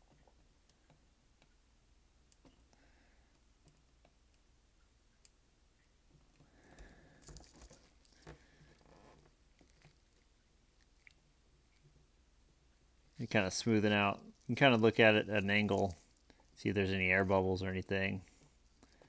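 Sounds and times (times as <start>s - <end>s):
hands scratching and clicking objects: 6.6s - 12.0s, 13.1s - 17.4s.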